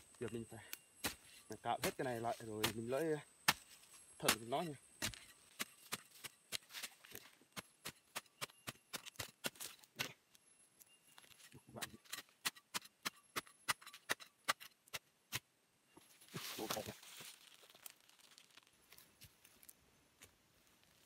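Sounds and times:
blade chopping into soil and roots: 0.6 - 10.2.

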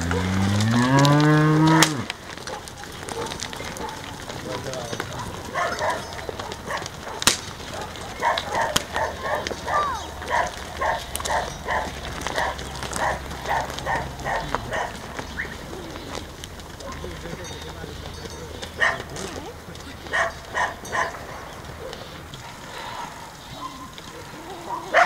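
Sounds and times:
dog barking: 2.3 - 4.2, 5.1 - 15.1, 16.8 - 17.2, 18.8 - 19.3, 20.0 - 25.0.

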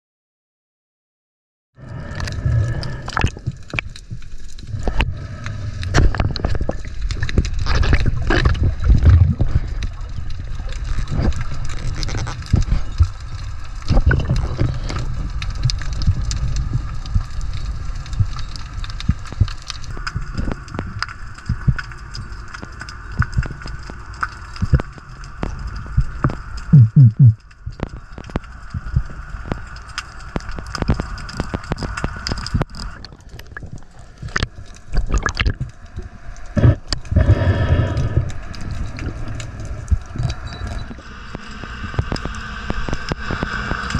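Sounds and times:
muffled underwater rumble: 1.8 - 43.9
sharp clicks and crackles: 1.8 - 43.9
loud low thumps: 26.8 - 27.4.

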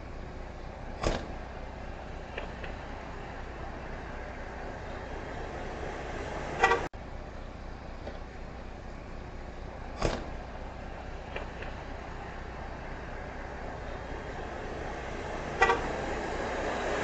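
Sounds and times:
sharp thump: 1.0 - 1.4, 10.0 - 10.4.

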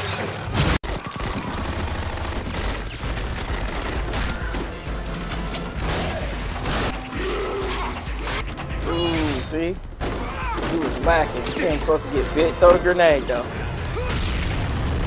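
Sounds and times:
rapid gunfire: 0.8 - 7.0
low rumbling film score: 1.4 - 15.0.

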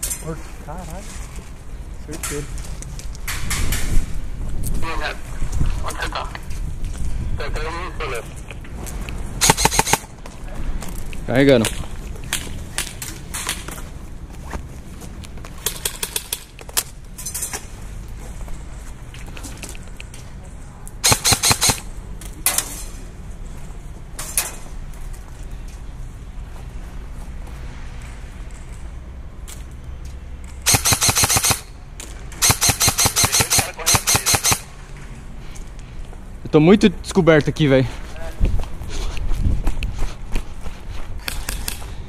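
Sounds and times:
airsoft guns firing: 9.4 - 10.1, 21.0 - 22.6, 30.6 - 31.7, 32.4 - 34.7.

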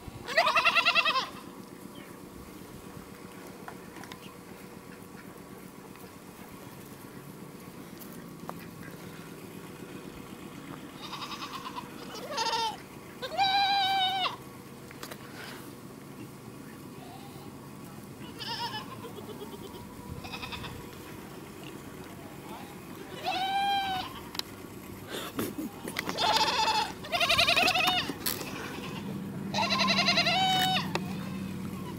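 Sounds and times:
goat bleating: 0.2 - 1.5, 10.8 - 14.4, 18.2 - 24.4, 25.2 - 31.9.

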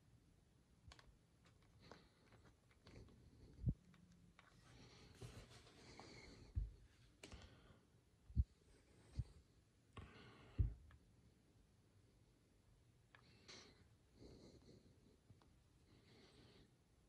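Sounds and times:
soft rubbing and scraping: 4.4 - 7.1.

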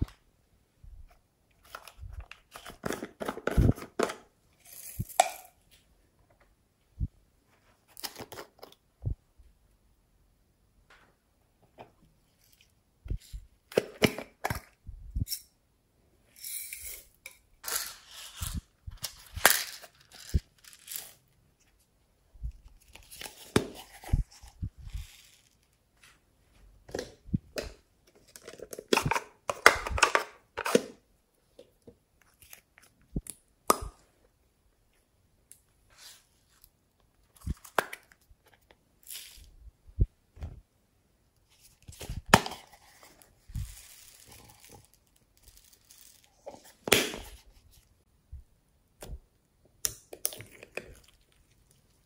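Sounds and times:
plastic containers clicking and crackling: 1.6 - 4.3, 26.9 - 31.0.

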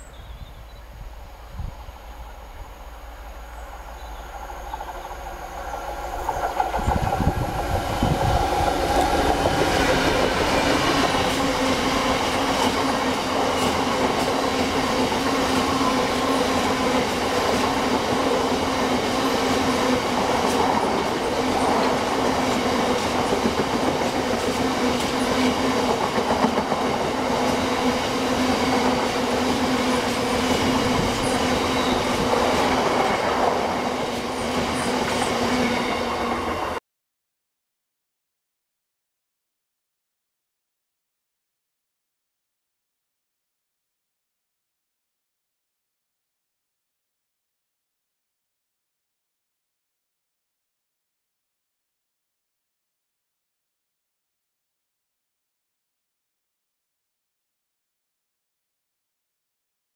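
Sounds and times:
diesel locomotive passing: 0.0 - 36.8.

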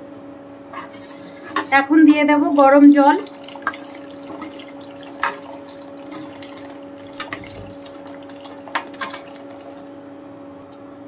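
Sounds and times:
water pouring into a pot: 2.5 - 9.9.

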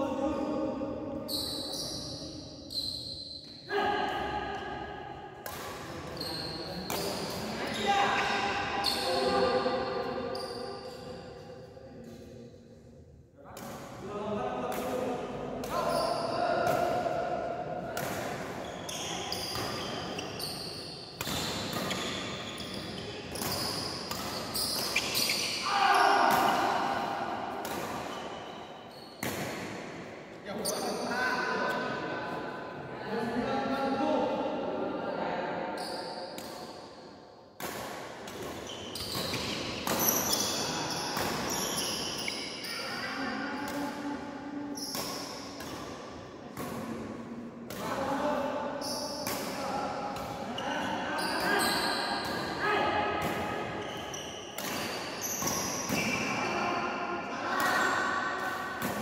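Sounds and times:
rackets hitting shuttlecock: 5.4 - 6.2, 6.8 - 7.5, 14.7 - 20.5, 21.1 - 28.6, 29.2 - 30.1, 37.6 - 42.5, 48.8 - 50.5, 54.5 - 56.3, 57.6 - 59.0
shoes squeaking on court: 18.6 - 25.6, 38.5 - 42.8, 50.6 - 52.6, 53.7 - 56.4
rackets striking shuttlecock: 21.1 - 25.6, 26.3 - 28.6, 54.5 - 56.1.

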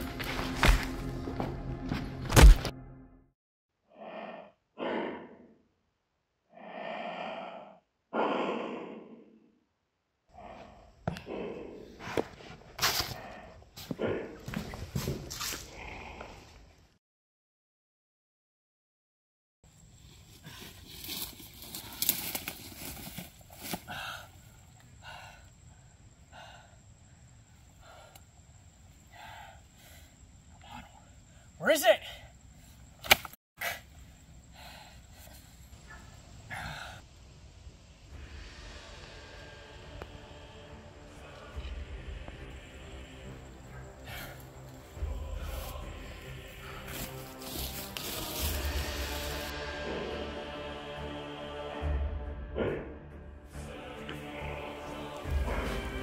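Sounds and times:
person breathing hard: 6.5 - 9.4, 23.7 - 32.4, 33.6 - 35.8, 36.5 - 37.1, 42.5 - 49.5.

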